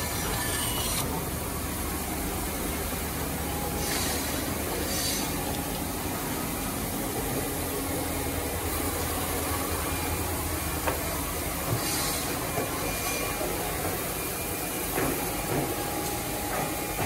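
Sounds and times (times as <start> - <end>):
woodworking machinery humming: 0.0 - 3.8.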